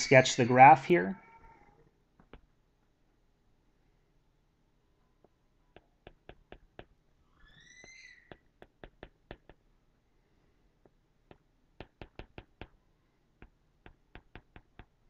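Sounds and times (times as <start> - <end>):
stylus tapping on glass screen: 5.7 - 7.0, 7.8 - 9.6, 10.8 - 12.8, 13.4 - 15.0.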